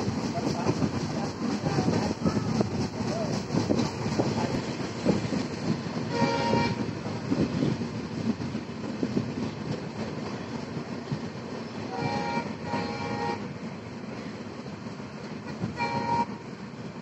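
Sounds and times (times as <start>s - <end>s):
train rumble with wheel clatter: 0.0s - 17.0s
train horn blasts: 6.1s - 7.0s, 11.8s - 13.5s, 15.6s - 16.5s.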